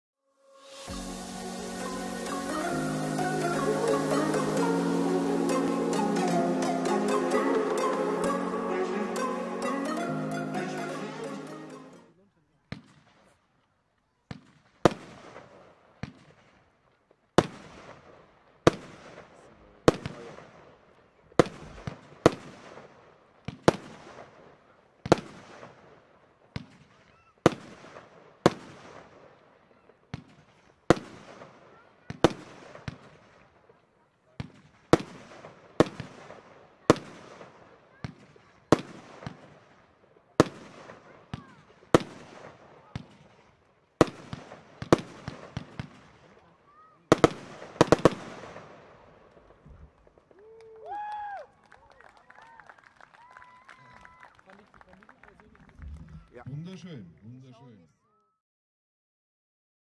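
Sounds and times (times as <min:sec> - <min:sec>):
firework hiss: 0:00.5 - 0:05.3.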